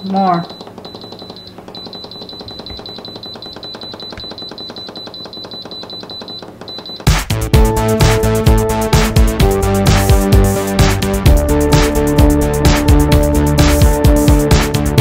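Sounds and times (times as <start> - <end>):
control panel rapid beeping: 0.1 - 7.4
loud background music: 7.0 - 15.0.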